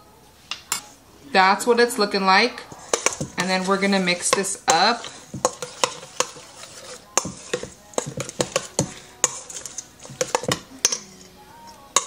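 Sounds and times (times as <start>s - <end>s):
metal spoon scraping a steel bowl: 2.7s - 12.0s.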